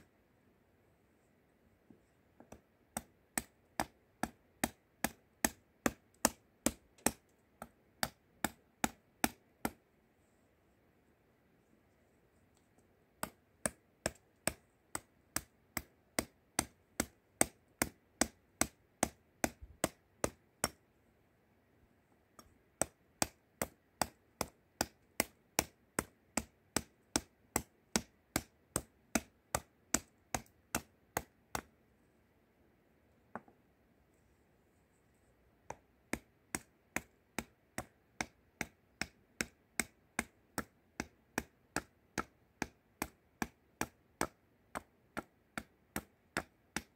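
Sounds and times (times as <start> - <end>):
hatchet chopping wood: 2.5 - 9.8, 13.2 - 20.8, 22.4 - 31.7, 35.7 - 46.9.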